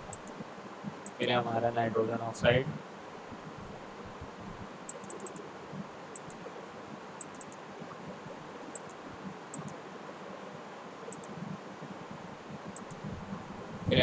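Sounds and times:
steady background hiss: 0.0s - 14.0s
faint sharp clicks: 0.1s - 0.4s, 6.2s - 6.4s, 7.2s - 7.6s, 8.7s - 9.8s, 11.1s - 11.4s, 12.7s - 13.1s.

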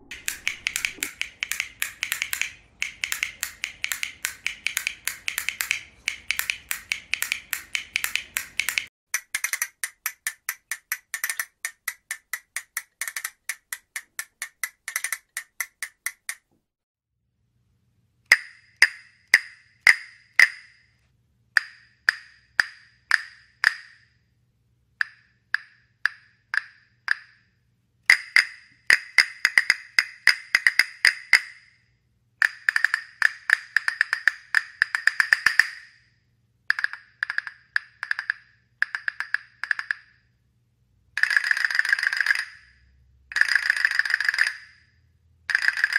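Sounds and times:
wooden castanets clacking: 0.0s - 16.5s, 32.4s - 35.9s, 36.7s - 40.2s.

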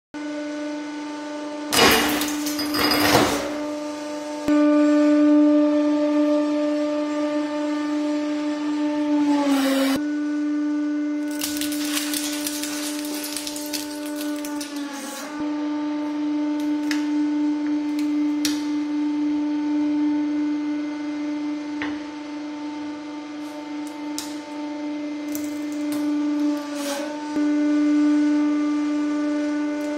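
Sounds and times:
material crushing crackle: 11.2s - 15.1s.

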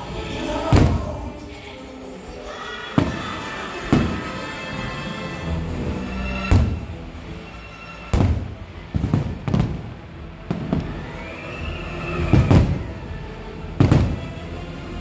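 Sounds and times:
fireworks bursting with booms: 0.6s - 1.4s, 2.9s - 4.6s, 6.5s - 7.0s, 8.1s - 11.1s, 12.1s - 13.0s, 13.8s - 14.4s.

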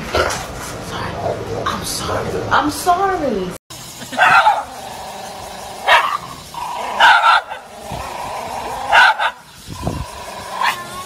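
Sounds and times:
dog barking: 4.2s - 4.7s, 5.8s - 6.2s, 6.9s - 7.7s, 8.9s - 9.4s.

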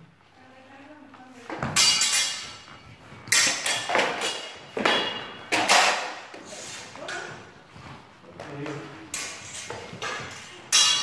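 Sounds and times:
metal swords clashing: 1.6s - 6.3s, 9.1s - 11.0s.

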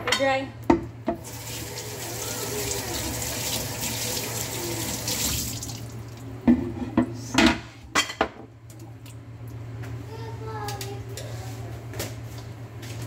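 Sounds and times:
tap water running over hands: 1.2s - 6.2s.

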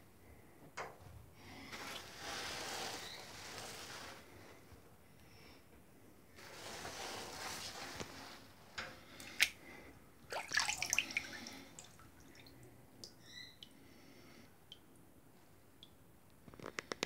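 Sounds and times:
water sloshing in a basin: 6.4s - 13.6s
hand splashing water: 10.3s - 13.2s.

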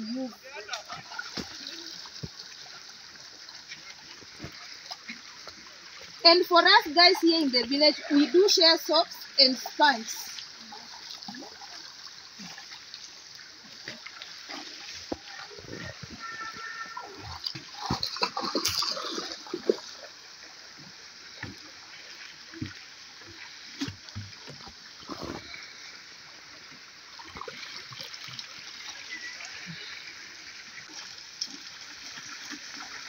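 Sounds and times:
river water flowing: 0.0s - 33.0s
feet splashing while wading: 14.4s - 20.1s.

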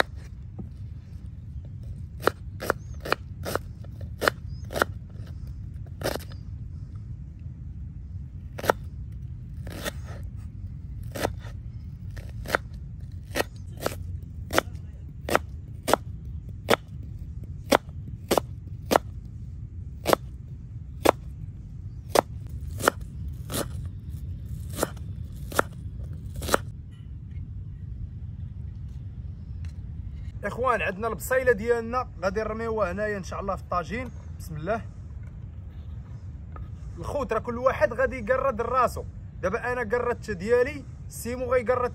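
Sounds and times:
low rumble: 0.0s - 37.6s
knife cutting onion: 2.1s - 6.5s, 8.5s - 8.9s, 9.5s - 10.3s, 10.9s - 17.0s, 20.0s - 20.3s, 22.0s - 26.7s.

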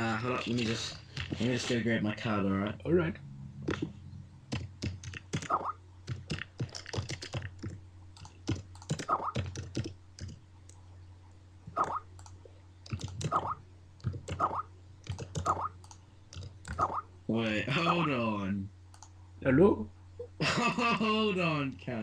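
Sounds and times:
keyboard typing: 4.5s - 10.8s, 11.8s - 17.0s.

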